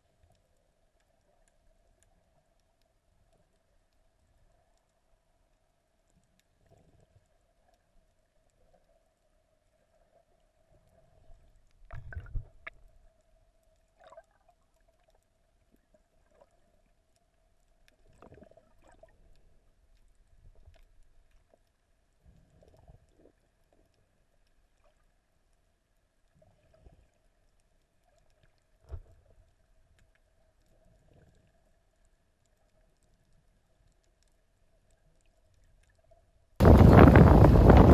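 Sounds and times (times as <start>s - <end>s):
low underwater hum: 0.0s - 37.9s
water gurgling and thumping: 11.9s - 12.8s, 36.6s - 37.9s.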